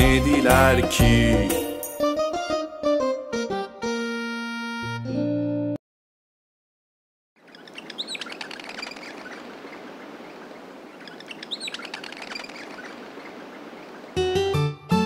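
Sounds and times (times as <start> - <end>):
plucked guitar music: 0.0 - 5.8, 14.2 - 15.0
birds chirping: 7.4 - 14.6
outdoor background hiss: 7.4 - 14.6.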